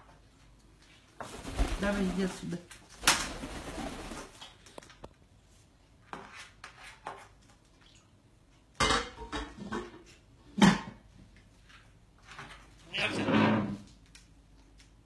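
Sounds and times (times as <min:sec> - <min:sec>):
dishes knocking and clattering: 0:08.8 - 0:11.0.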